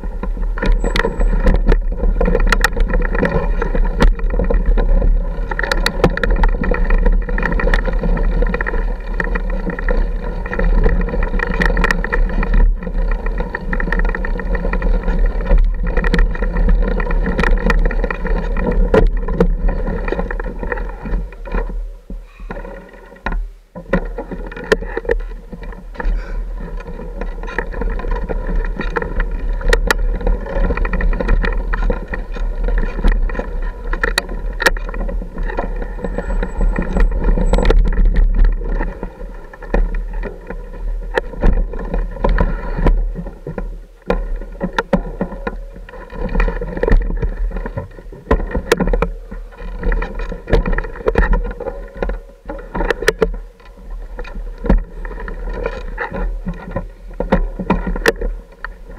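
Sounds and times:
knocks and rattles of bike: 0.0s - 58.9s
wind on microphone: 24.7s - 58.9s.

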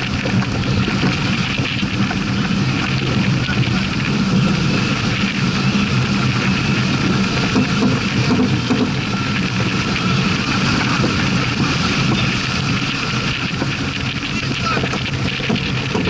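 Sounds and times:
rush of water: 0.0s - 16.0s
wind buffeting microphone: 0.0s - 16.0s.

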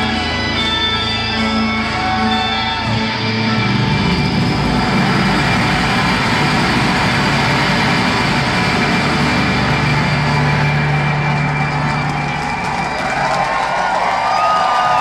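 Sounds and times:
live rock band roaring: 0.0s - 15.0s
low held bass note: 3.6s - 12.2s
gong struck: 3.9s - 12.8s.

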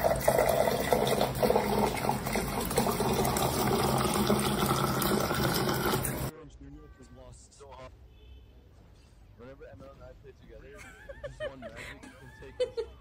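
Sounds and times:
water pouring into plastic cup: 0.0s - 6.3s.

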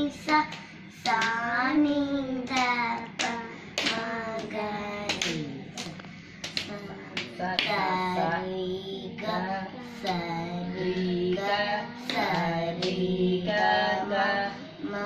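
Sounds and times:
girls singing scale exercises: 0.0s - 15.0s
hand claps keeping beat: 0.2s - 7.9s, 12.0s - 13.1s.

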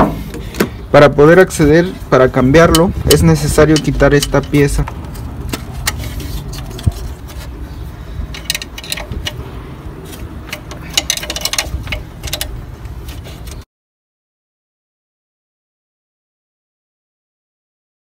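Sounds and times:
plastic part clicking and rattling: 2.6s - 7.5s, 8.3s - 9.4s, 10.1s - 13.6s.

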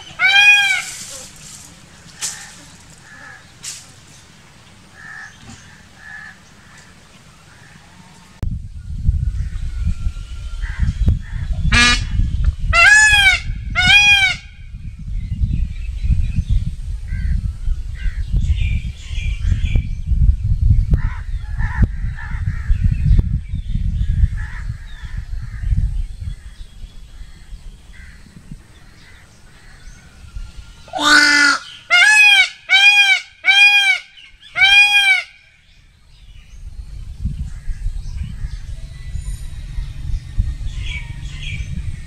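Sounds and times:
peacock honking calls: 0.0s - 3.7s, 4.9s - 8.4s, 10.6s - 14.5s, 28.8s - 35.7s
low rumbling noise: 0.0s - 33.4s, 35.3s - 42.0s.

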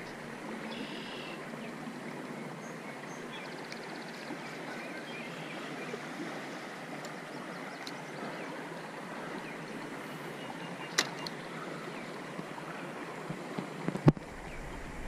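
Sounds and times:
stream flowing: 0.0s - 15.0s.

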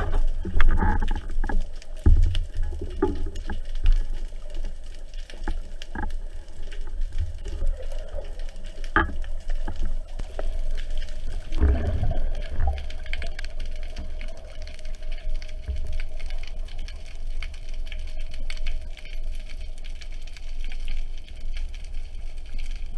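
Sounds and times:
water rushing: 0.0s - 18.5s
underwater rumble of moving water: 0.0s - 22.9s.

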